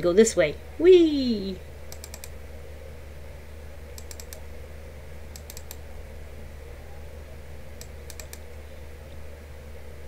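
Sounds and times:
steady low hum: 0.0 - 10.0
keyboard clicks: 1.9 - 2.3, 3.9 - 4.4, 5.3 - 5.8, 7.8 - 8.5.

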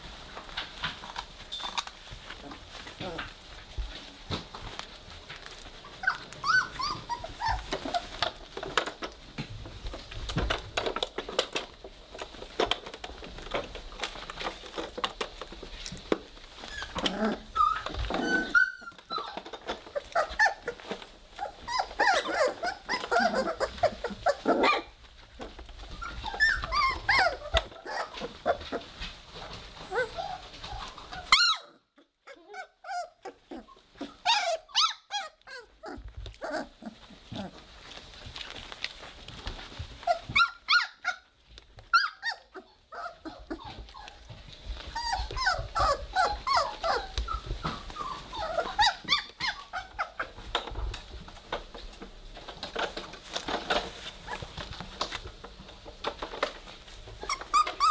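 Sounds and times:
paws scrabbling and clicking: 0.0 - 31.5, 32.3 - 57.9
puppies growling: 2.2 - 57.9
puppies squeaking and whimpering: 5.6 - 9.2, 12.2 - 50.6, 53.2 - 54.8, 56.8 - 57.9.

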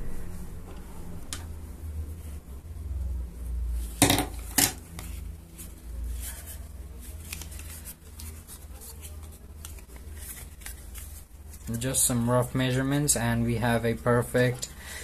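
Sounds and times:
paper rustling: 4.4 - 11.9.

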